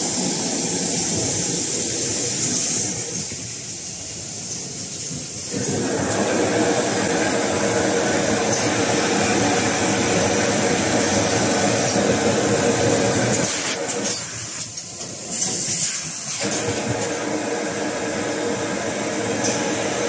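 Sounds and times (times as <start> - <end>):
constant machine hiss: 0.0 - 20.0
short sharp hisses: 1.7 - 3.4
packing machine drone: 5.4 - 20.0.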